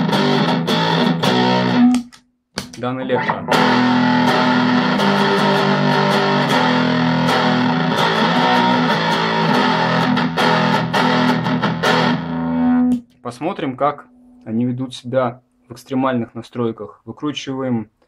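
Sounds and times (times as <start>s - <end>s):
fuzzed electric guitar chords: 0.0s - 2.1s, 3.0s - 13.0s.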